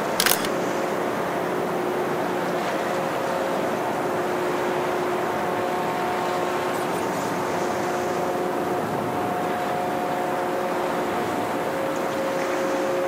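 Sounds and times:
ship engines droning: 0:03.2 - 0:13.0.

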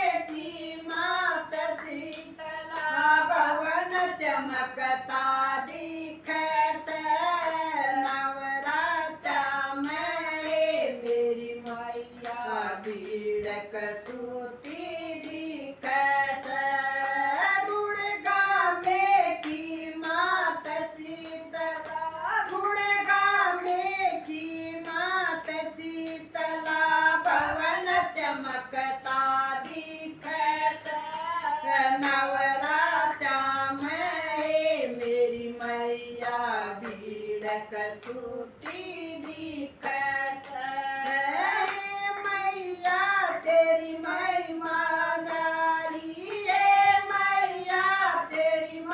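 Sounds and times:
hand claps: 0:00.0 - 0:48.9
women and girl singing devotional song: 0:00.0 - 0:48.9.

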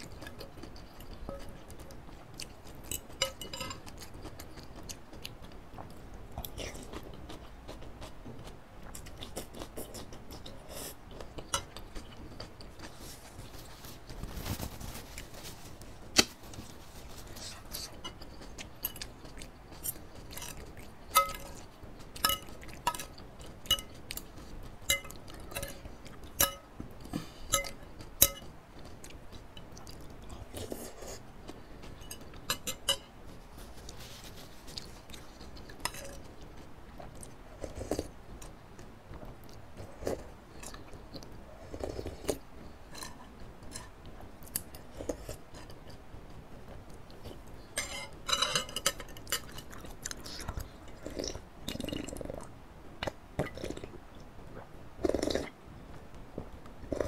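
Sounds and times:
cutlery clinking on ceramic bowl: 0:02.8 - 0:04.1, 0:20.3 - 0:21.6, 0:22.2 - 0:24.3, 0:24.9 - 0:26.7, 0:27.5 - 0:28.5, 0:32.0 - 0:33.1, 0:47.8 - 0:49.9
chewing noodles: 0:48.8 - 0:55.6.

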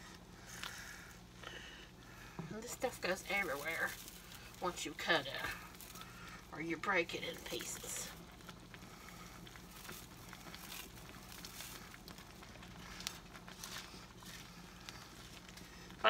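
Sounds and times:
dry noodles crackling and rustling: 0:00.0 - 0:16.0
wooden spoon stirring: 0:01.7 - 0:16.0.

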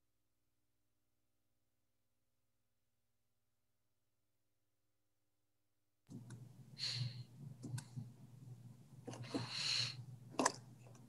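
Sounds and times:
low electrical hum: 0:06.1 - 0:11.0
breaths: 0:06.8 - 0:07.3, 0:09.1 - 0:10.1.

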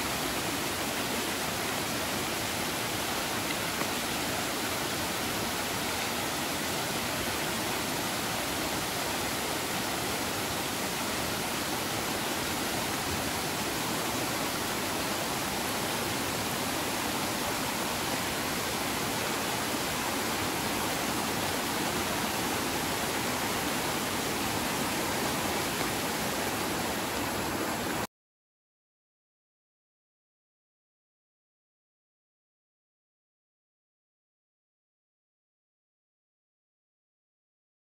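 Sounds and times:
river rushing over rocks: 0:00.0 - 0:28.1.

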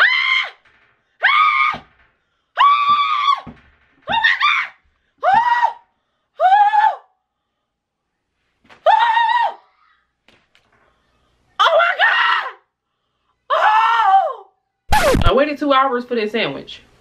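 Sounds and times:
woman shrieking: 0:08.8 - 0:10.0, 0:13.5 - 0:14.5.

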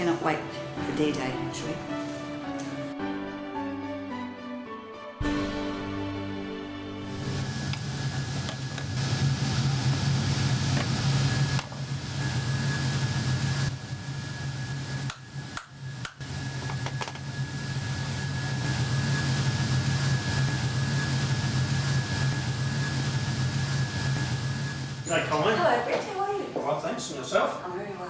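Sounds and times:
fan humming: 0:00.0 - 0:03.0, 0:06.1 - 0:28.0
thin high whine: 0:06.6 - 0:25.8.

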